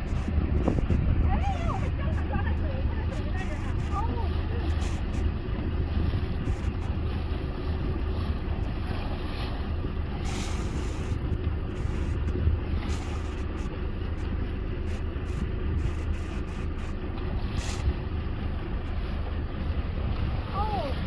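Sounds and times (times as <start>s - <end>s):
wind on microphone: 0.0s - 14.3s
boat engine droning: 0.0s - 21.0s
water splashing along hull: 0.0s - 21.0s.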